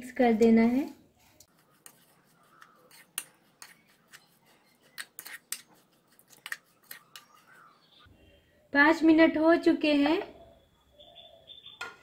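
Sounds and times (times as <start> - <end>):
spoon scraping plastic bowl: 1.5 - 7.7.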